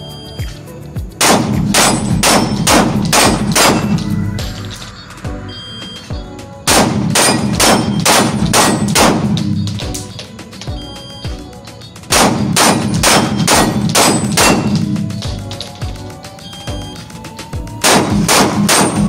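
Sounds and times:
pistol shots echoing indoors: 1.2 - 4.1, 6.7 - 10.2, 12.1 - 15.2, 17.8 - 19.0
steel targets clanging: 7.1 - 10.7, 11.7 - 15.8.

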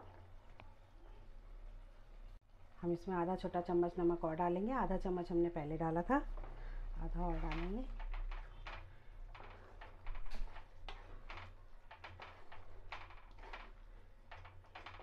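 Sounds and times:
wooden spatula scraping a pot: 5.0 - 15.0.

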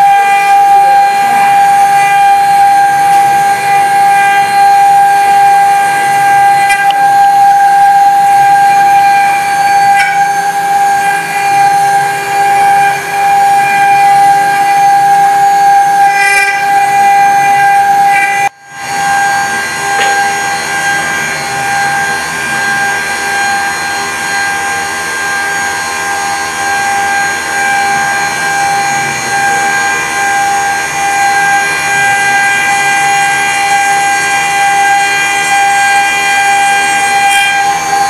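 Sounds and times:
milling machine spindle whining: 0.0 - 38.0.

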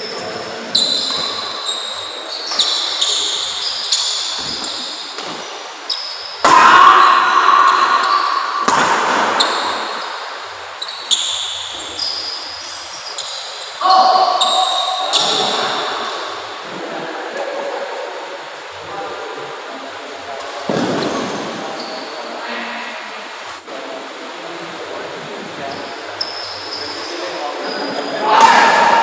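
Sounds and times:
shoes squeaking on court: 0.0 - 6.4, 9.4 - 16.4, 20.6 - 22.2, 25.7 - 28.1
racket striking shuttlecock: 7.8 - 9.9.

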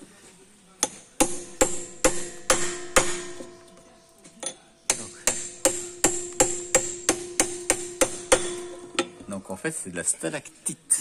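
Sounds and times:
hammer striking steel chisel: 0.8 - 3.8, 4.4 - 9.2.

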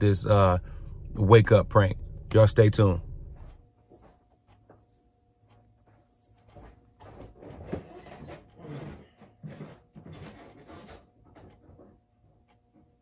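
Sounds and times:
rubbing and knocking near microphone: 6.4 - 12.0.

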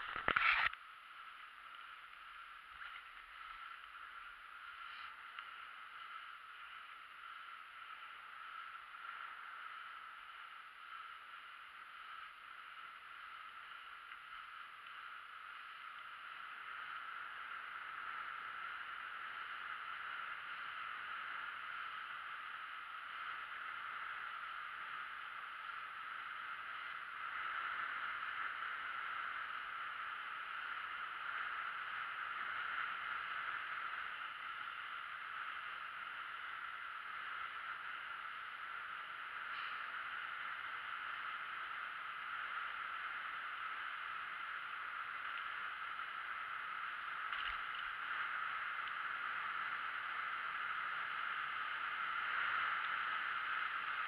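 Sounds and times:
bike tyres rushing hiss: 2.8 - 8.0, 38.0 - 54.0.

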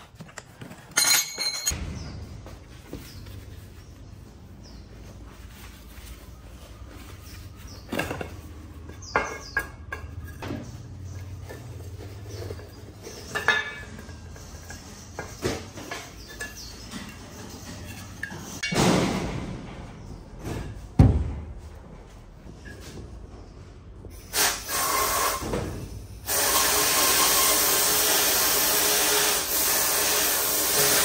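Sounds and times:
metallic clinks of tools: 0.9 - 1.8.

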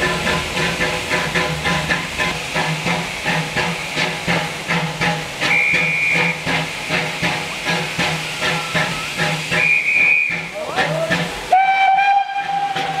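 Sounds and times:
steam hissing: 0.0 - 13.0
steam locomotive chuffing: 0.0 - 13.0
high train whistle: 5.4 - 6.5, 8.4 - 13.0.

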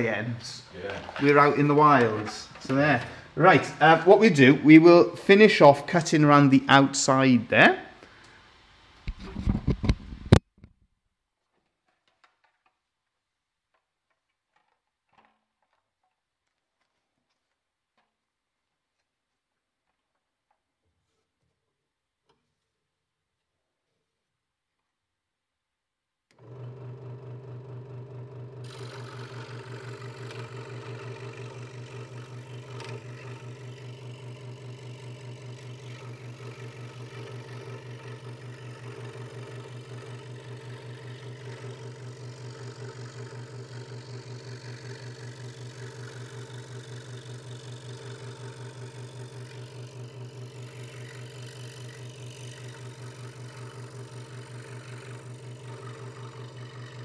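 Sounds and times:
scroll saw humming: 26.3 - 57.0
saw blade cutting wood: 28.6 - 57.0.

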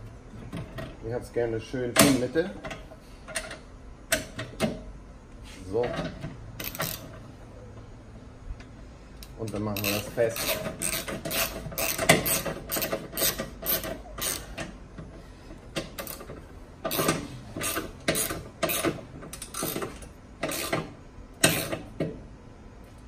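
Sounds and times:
ratchet wrench clicking: 6.6 - 7.2, 9.2 - 14.8, 15.8 - 21.9.

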